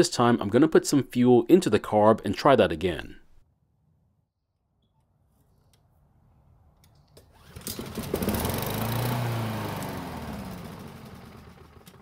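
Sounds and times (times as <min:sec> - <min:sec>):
lawn mower engine running: 0:07.3 - 0:12.0.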